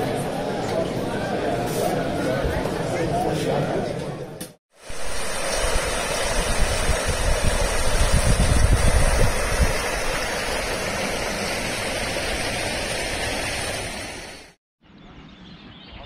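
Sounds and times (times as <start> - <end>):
rushing outdoor noise: 4.7 - 14.6
wind buffeting microphone: 4.9 - 13.7.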